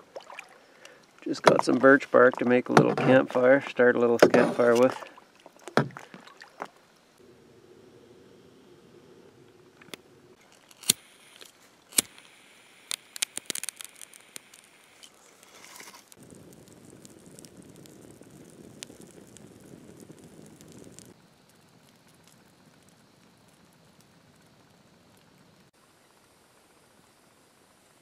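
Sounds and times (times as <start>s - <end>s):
campfire crackling and popping: 0.2s - 26.2s
low rush of flames: 7.2s - 27.9s.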